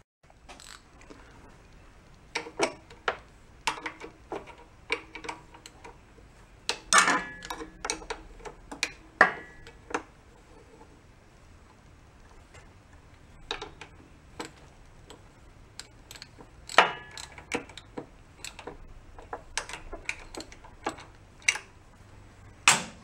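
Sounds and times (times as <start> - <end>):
wrench clicking on metal: 0.5 - 0.9, 6.7 - 10.0, 13.5 - 21.7.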